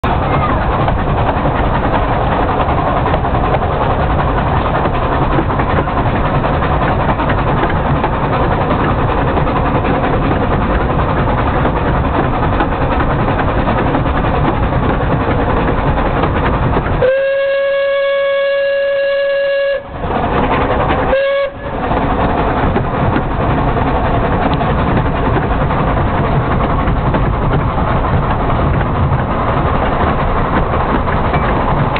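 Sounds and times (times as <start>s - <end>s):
steam train rumble and rattle: 0.0s - 31.9s
steam whistle blasts: 17.0s - 20.0s, 21.1s - 21.8s
wind noise: 18.2s - 31.9s.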